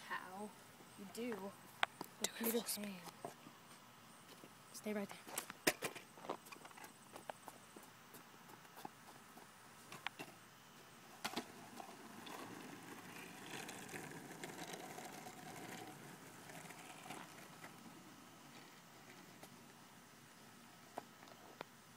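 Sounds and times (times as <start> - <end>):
skateboard wheels rolling on asphalt: 5.2 - 21.9.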